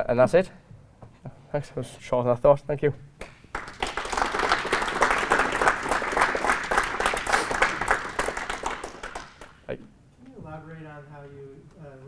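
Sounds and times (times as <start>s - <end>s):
audience applauding: 3.5s - 9.6s.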